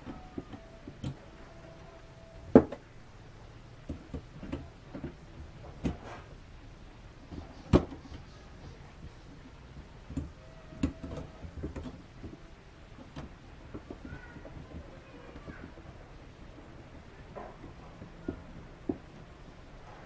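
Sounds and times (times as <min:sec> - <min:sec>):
hand tools clicking and knocking: 0:09.0 - 0:19.4.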